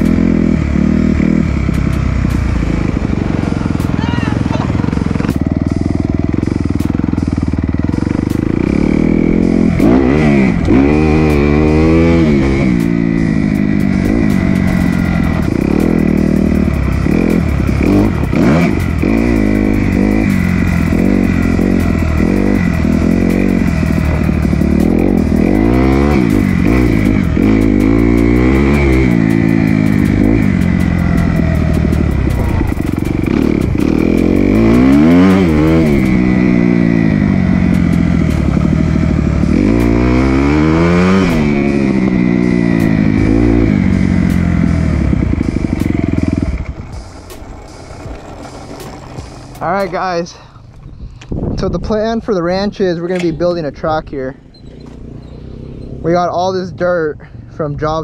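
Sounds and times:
dirt bike engine revving: 0.0 - 50.9, 51.5 - 57.0.

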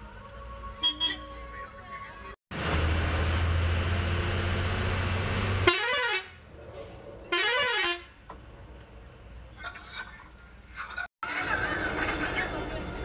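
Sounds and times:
bus musical horn warbling: 0.8 - 1.4, 5.5 - 6.4, 7.3 - 8.2.

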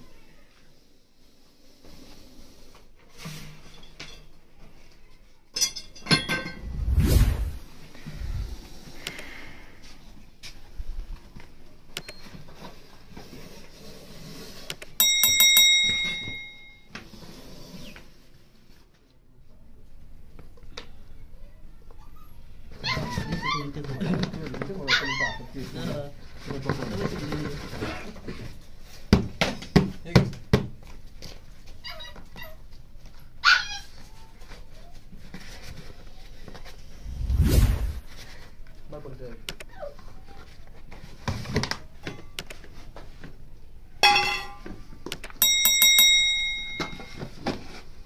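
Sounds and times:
low background noise: 0.0 - 48.0
bicycle bell ringing: 15.0 - 16.9, 45.4 - 47.2
dog whimpering yelps: 22.0 - 23.8, 24.8 - 25.5, 33.4 - 33.9.

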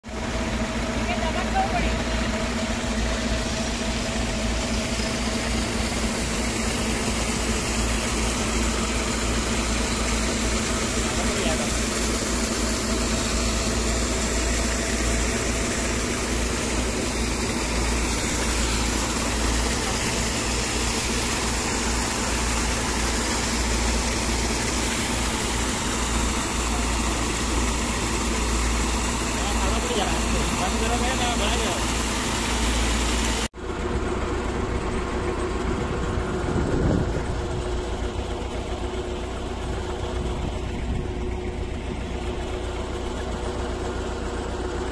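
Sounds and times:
tractor diesel engine running: 0.0 - 44.9
pump water discharge hiss: 0.1 - 44.9.

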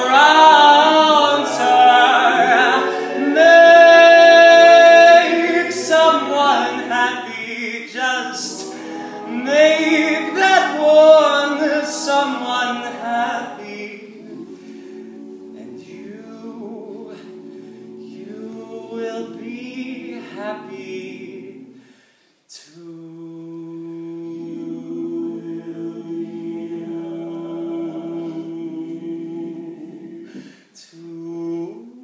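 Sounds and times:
male group singing chords: 0.0 - 22.0, 22.6 - 31.9.

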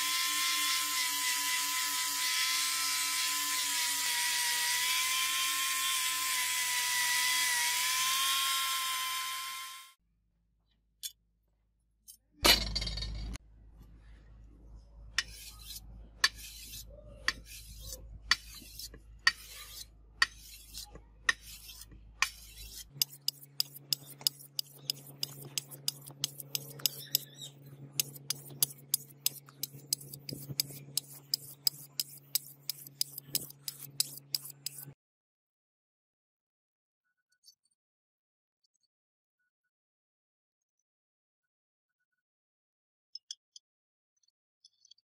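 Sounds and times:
sharpening stone scraping sword blade: 15.2 - 35.0.

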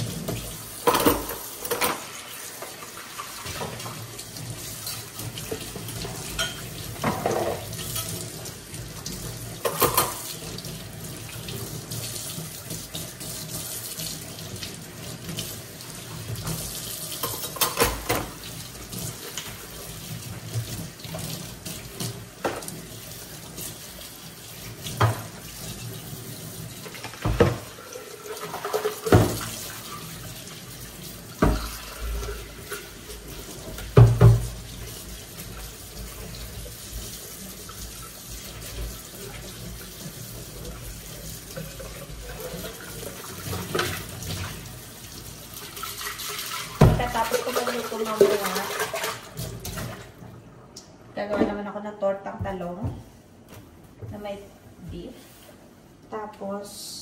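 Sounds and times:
dishes clattering in sink: 0.0 - 8.5, 9.1 - 10.6, 16.1 - 23.0, 24.8 - 25.8, 26.8 - 30.6, 31.3 - 35.6, 37.8 - 44.6, 45.6 - 50.1
tap running into sink: 24.8 - 25.4, 26.8 - 27.8, 28.6 - 29.7, 31.4 - 32.8, 33.5 - 34.9, 46.8 - 47.2.

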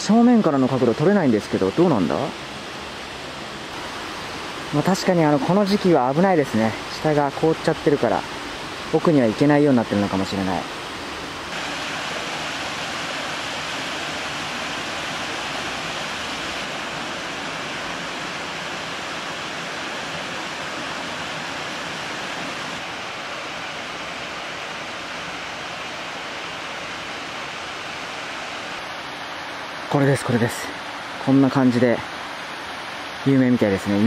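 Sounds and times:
waterfall splashing into pool: 11.5 - 24.0.

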